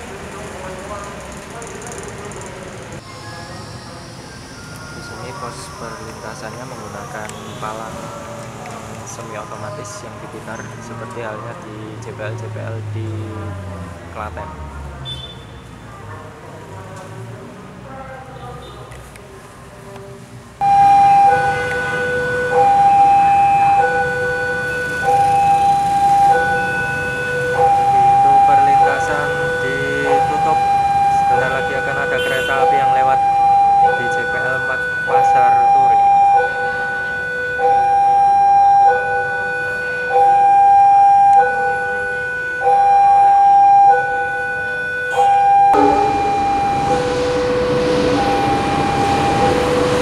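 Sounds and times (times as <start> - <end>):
level crossing two-tone alarm: 3.3 - 7.8, 20.6 - 50.0.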